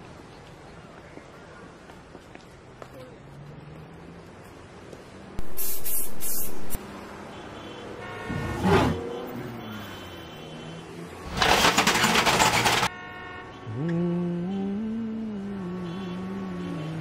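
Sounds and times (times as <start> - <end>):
loud even hiss: 5.4 - 6.8.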